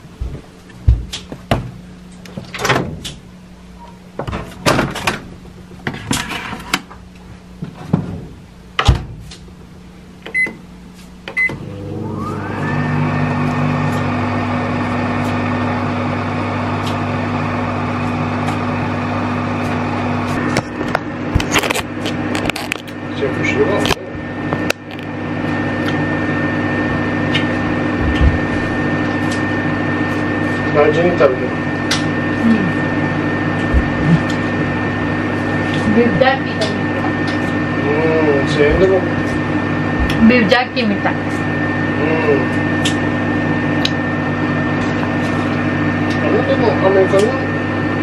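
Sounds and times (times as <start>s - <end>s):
microwave oven humming: 0.0s - 48.0s
microwave button beeps: 10.3s - 10.6s, 11.3s - 11.7s.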